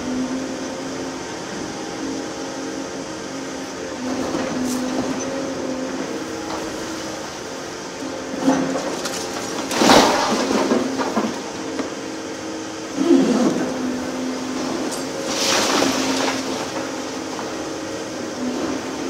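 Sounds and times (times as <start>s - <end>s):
excavator engine and hydraulics drone: 0.0s - 19.0s
crash of falling bricks: 8.4s - 11.9s, 14.8s - 17.6s.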